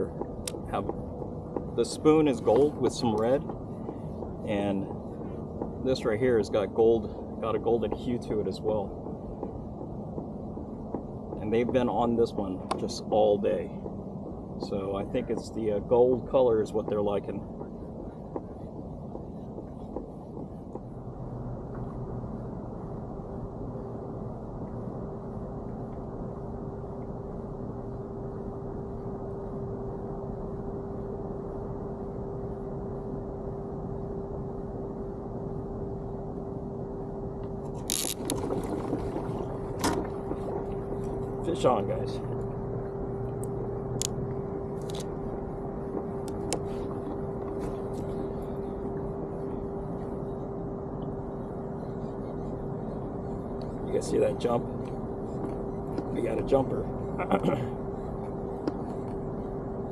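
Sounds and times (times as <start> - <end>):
constant hum: 0.0 - 59.9
rush of water and air: 37.5 - 55.4.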